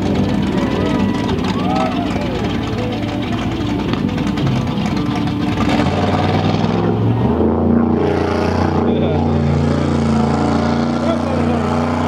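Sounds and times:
engine revving hard: 4.3 - 12.0.

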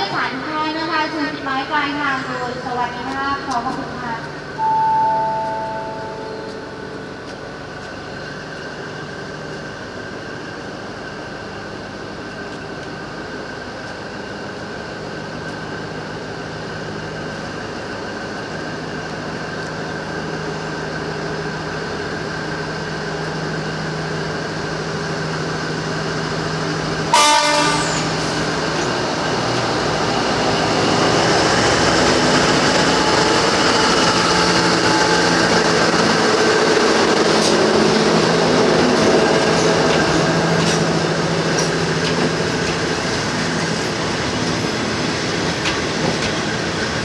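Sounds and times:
diesel locomotive engine running: 0.0 - 47.0
train wheels rumbling: 5.3 - 47.0
train horn blast: 27.1 - 28.2.

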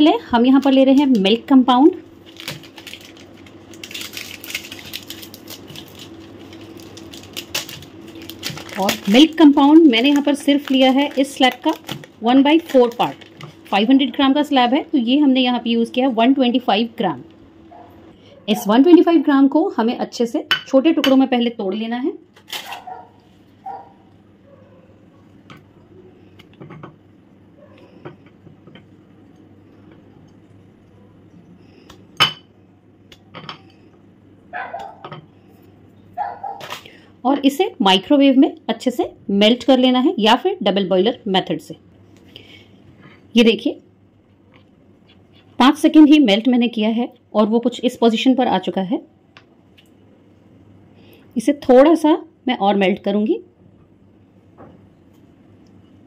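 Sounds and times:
plastic wrapper crinkling: 2.1 - 14.2, 22.4 - 23.0.

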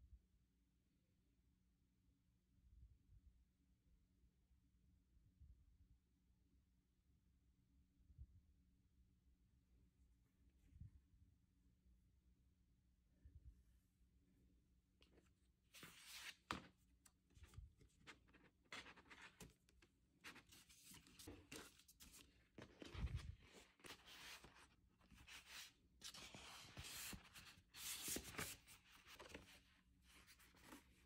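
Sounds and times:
paper and card rustling: 15.0 - 31.0.

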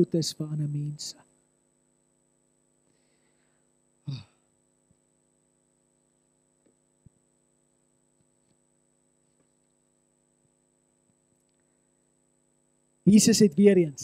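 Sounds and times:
electrical hum: 0.0 - 14.0
faint high whine: 0.0 - 14.0.

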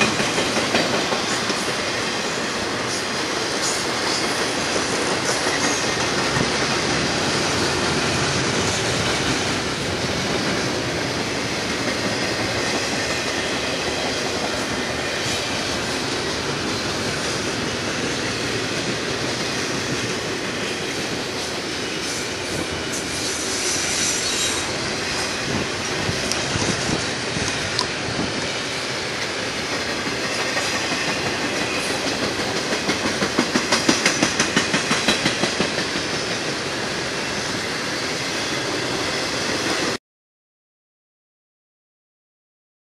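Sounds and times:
wheels clacking over rail joints: 0.0 - 17.6, 23.9 - 36.5
freight train wheels rumbling: 0.0 - 40.0
high wheel squeal: 21.8 - 27.0.

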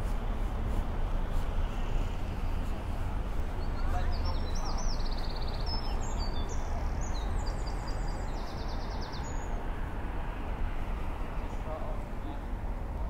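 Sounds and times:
steady low rumble: 0.0 - 8.0.

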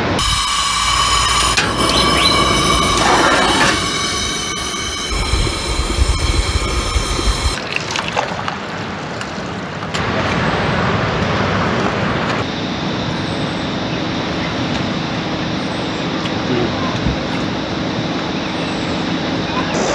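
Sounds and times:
gas burner rumble: 0.0 - 7.6
moka pot hissing and whistling: 0.0 - 7.6.

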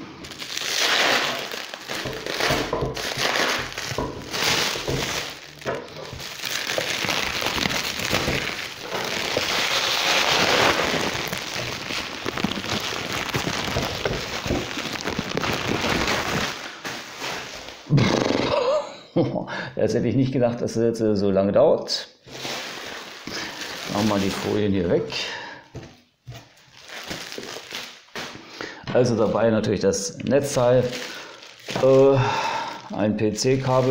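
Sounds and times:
plastic bag crinkling: 0.0 - 17.9, 22.2 - 25.4, 26.3 - 29.6, 30.2 - 33.9.

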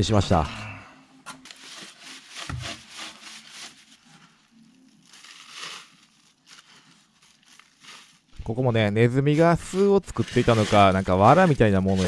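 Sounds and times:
plastic bag rustling: 1.4 - 12.0
hand broom sweeping straw: 5.1 - 12.0.

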